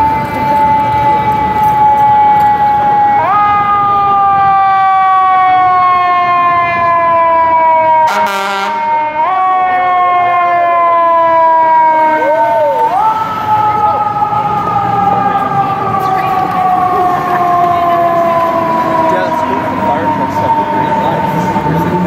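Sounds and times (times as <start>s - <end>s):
fire engine siren wailing: 0.0s - 22.0s
air horn blast: 8.0s - 9.0s.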